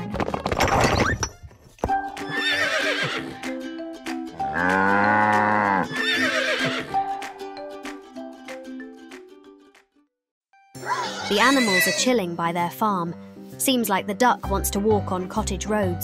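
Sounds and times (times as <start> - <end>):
light background music: 1.3 - 9.8, 10.6 - 16.0
cartoon horse whinnies: 2.3 - 3.4, 4.5 - 7.0, 10.8 - 12.1.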